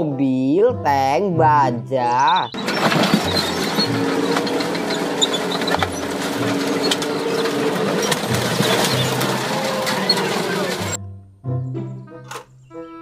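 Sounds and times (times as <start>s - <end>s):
tank engine droning: 2.2s - 11.0s
tank tracks clattering: 2.3s - 11.0s
metal cracking and crunching: 2.5s - 11.0s.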